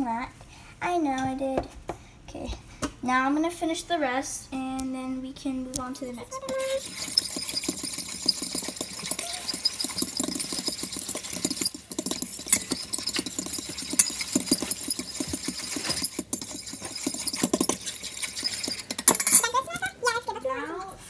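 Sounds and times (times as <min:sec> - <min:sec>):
fork scraping metal bowl: 0:06.3 - 0:19.9.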